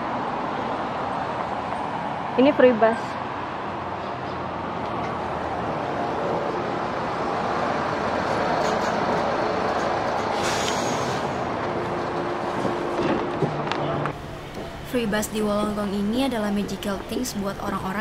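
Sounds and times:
bus engine and tyre noise: 0:00.0 - 0:18.0
air brake hiss: 0:10.4 - 0:11.4.

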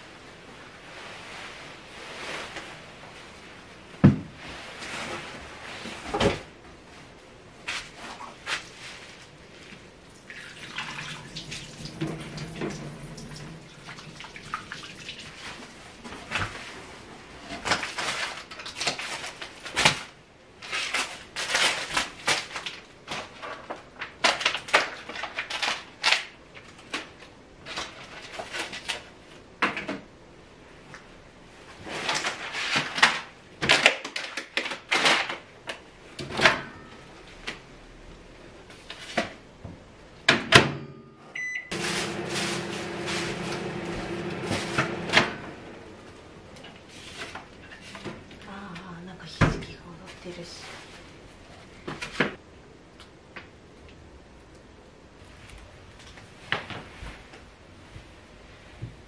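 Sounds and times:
plastic packaging crinkling: 0:17.6 - 0:29.1, 0:32.0 - 0:35.8.

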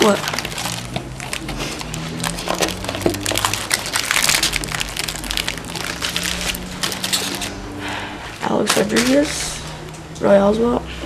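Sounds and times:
foil wrappers crinkling: 0:00.0 - 0:07.6, 0:08.5 - 0:09.6.

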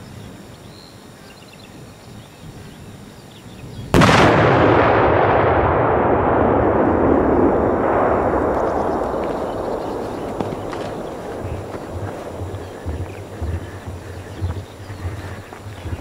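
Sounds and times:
quiet outdoor ambience: 0:00.0 - 0:16.0
rolling rumble: 0:03.9 - 0:16.0
firework explosion: 0:04.0 - 0:15.1.

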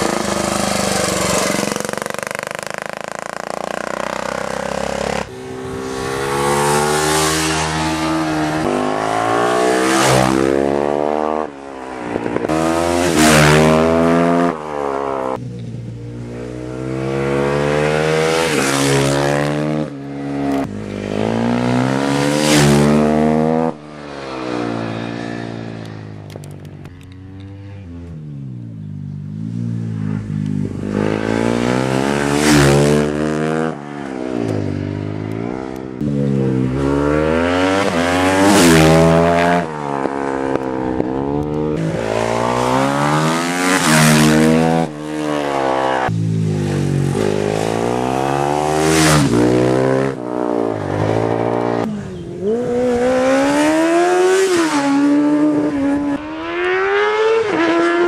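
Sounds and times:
racing motorcycle engine revving: 0:00.0 - 0:58.0.

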